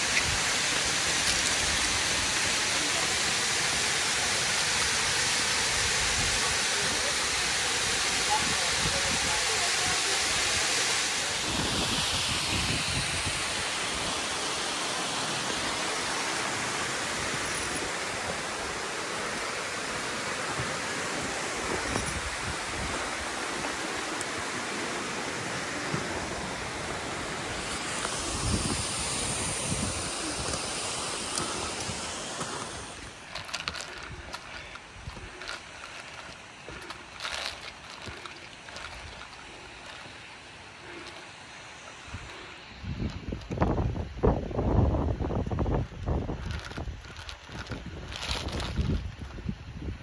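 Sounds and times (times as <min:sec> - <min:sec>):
waterfall rushing: 0:00.0 - 0:43.0
wind buffeting microphone: 0:28.1 - 0:40.0, 0:42.1 - 0:50.0.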